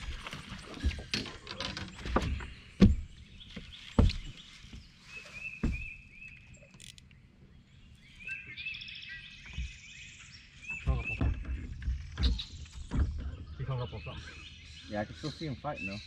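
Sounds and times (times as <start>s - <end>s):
bird chirping: 0.0s - 16.0s
hollow thumps on boat deck: 0.1s - 5.0s, 5.6s - 6.1s, 9.4s - 9.8s, 10.8s - 13.6s.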